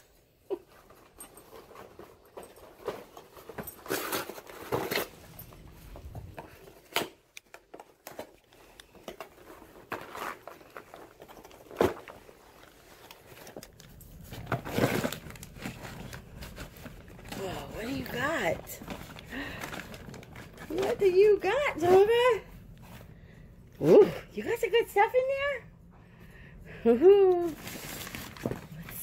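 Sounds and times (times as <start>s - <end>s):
dog ripping cardboard: 9.4s - 12.3s, 14.3s - 18.1s
tissue paper crinkling: 9.4s - 21.6s, 27.4s - 29.0s.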